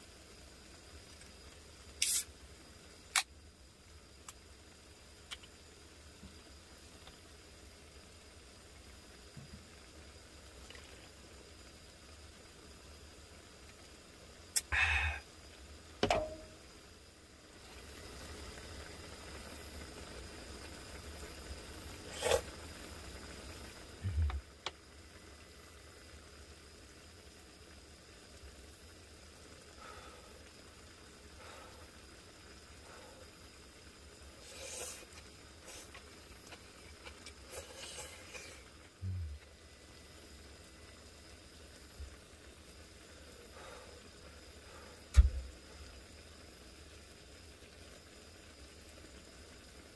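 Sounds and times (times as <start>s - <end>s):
broth simmering: 0.0s - 49.9s
gas stove hissing: 0.0s - 49.9s
low steady hum: 0.0s - 49.9s
person slurping: 22.0s - 22.5s, 34.4s - 36.0s, 37.4s - 39.4s
dull thump: 45.1s - 45.5s.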